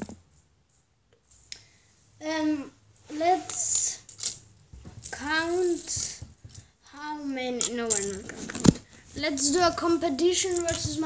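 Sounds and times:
child's wordless vocal sound: 2.2 - 4.1.

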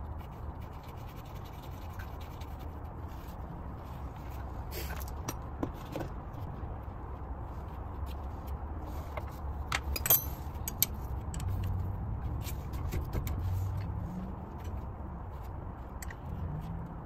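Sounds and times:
wrench and metal parts clinking: 9.7 - 11.7.

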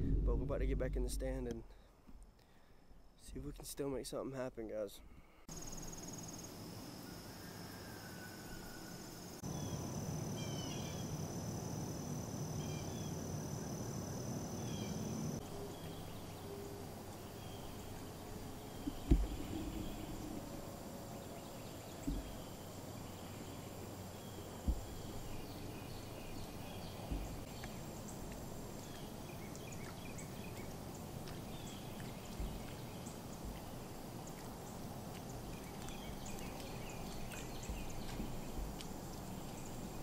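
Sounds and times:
soft low thumps: 0.0 - 2.3, 17.6 - 21.1, 21.9 - 22.6, 24.5 - 28.7, 32.3 - 32.8, 36.1 - 40.0.

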